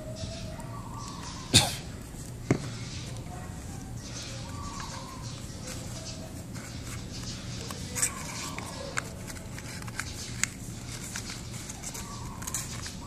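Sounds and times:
steady low hum: 0.0s - 13.0s
paper rustling and crackling: 4.5s - 13.0s.

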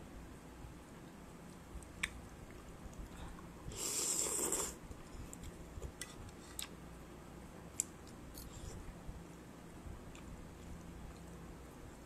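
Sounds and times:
person slurping noodles: 3.7s - 4.8s.

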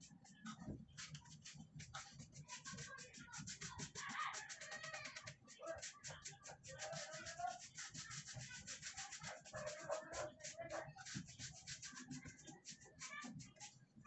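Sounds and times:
paintbrush rasping on wood: 1.0s - 13.8s.

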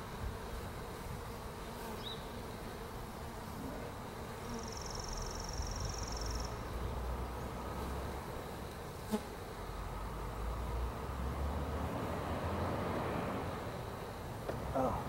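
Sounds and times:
bees buzzing: 0.0s - 15.0s.

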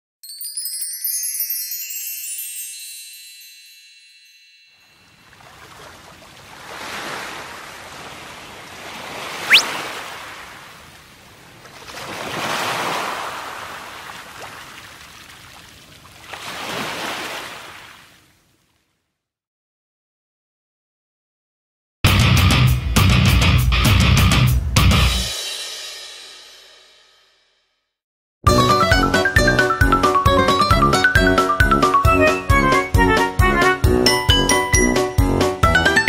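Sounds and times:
falling high chime tones: 0.2s - 5.2s
rising whistle: 9.4s - 9.8s.

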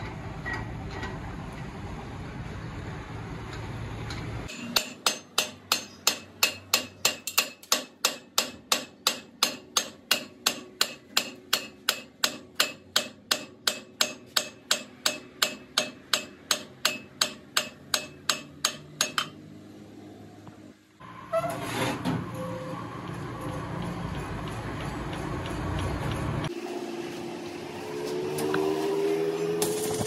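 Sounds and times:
hammer striking metal: 4.5s - 19.5s.

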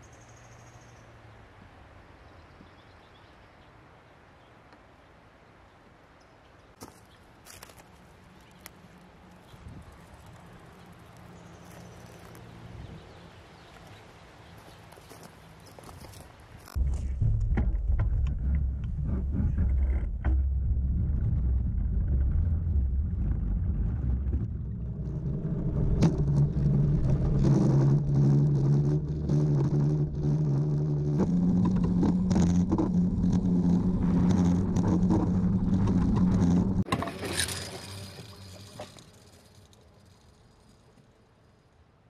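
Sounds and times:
rail bike rumbling on rails: 16.6s - 41.6s
humming tone: 16.8s - 40.7s.

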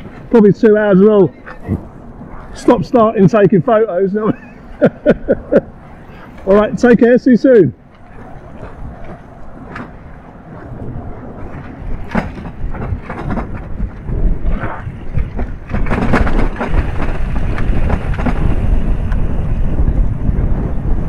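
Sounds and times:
wind buffeting microphone: 0.0s - 21.0s
bike tyre rumble and knocks: 11.4s - 21.0s.

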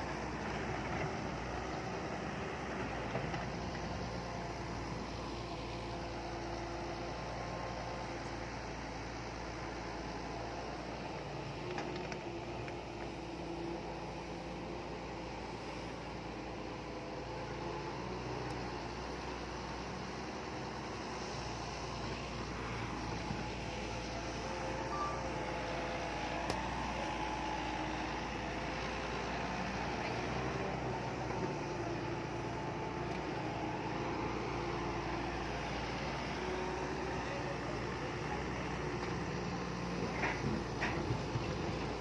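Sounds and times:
heavy diesel engines running: 0.0s - 42.0s
short high beep: 24.9s - 25.4s.

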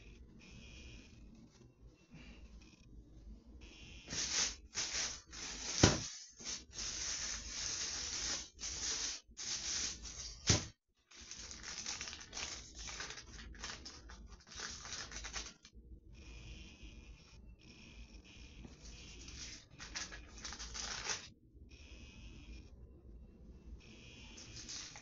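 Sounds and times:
packaging crinkling: 4.1s - 15.7s, 19.1s - 21.3s, 24.4s - 25.0s.

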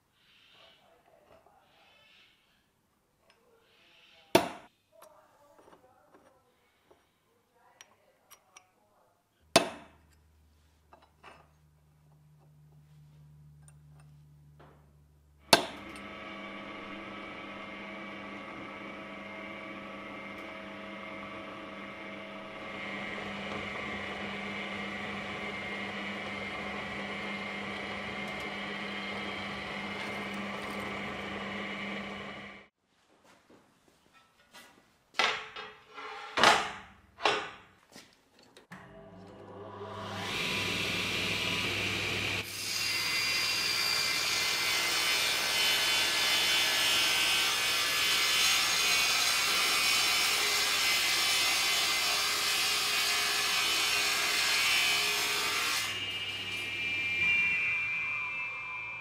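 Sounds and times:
drill press whining: 15.5s - 32.7s, 38.7s - 54.2s, 54.9s - 59.0s.

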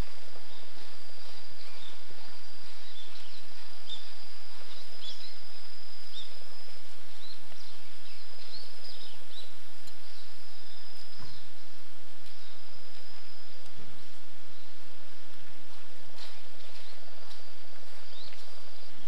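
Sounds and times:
insects trilling: 0.0s - 19.0s
steady hiss: 0.0s - 19.0s.

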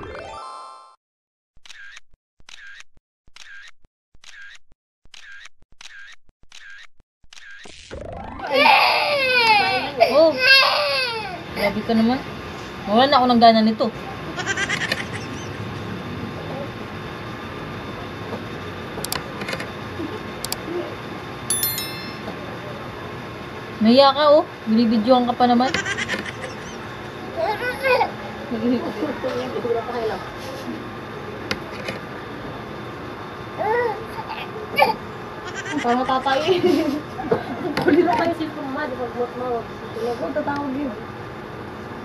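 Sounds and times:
rising glide effect: 0.0s - 0.9s, 7.8s - 8.9s
bright bell chime: 21.5s - 22.5s.

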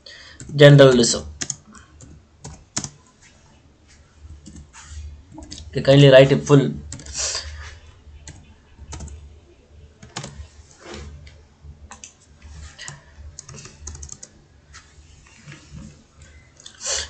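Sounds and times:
computer keyboard keystrokes: 1.4s - 3.0s, 8.3s - 9.2s, 10.0s - 10.4s, 12.8s - 14.3s.

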